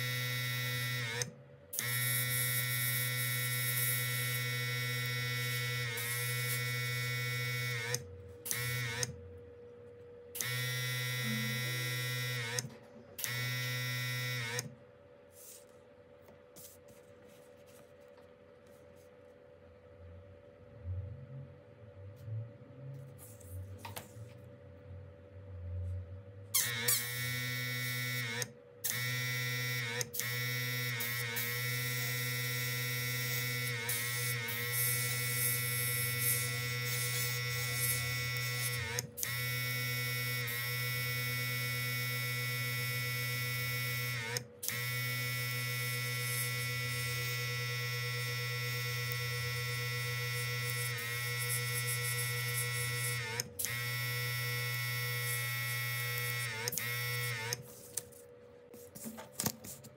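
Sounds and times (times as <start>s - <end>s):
airbrush compressor motor whine: 0.0s - 9.2s, 10.3s - 14.8s, 26.6s - 57.9s.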